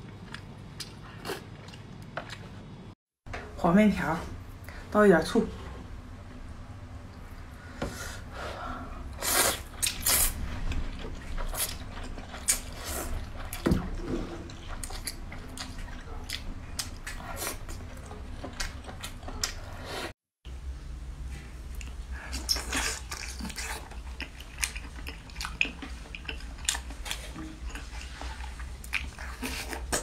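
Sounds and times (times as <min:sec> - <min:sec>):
wet chewing: 0:09.2 - 0:19.8, 0:21.7 - 0:30.0.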